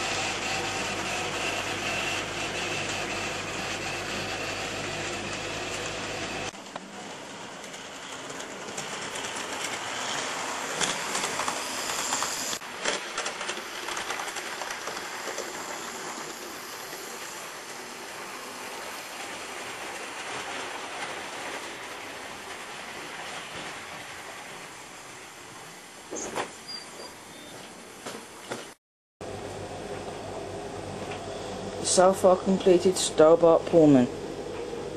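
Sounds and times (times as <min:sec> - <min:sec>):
model train wheels clicking: 0:07.6 - 0:18.2.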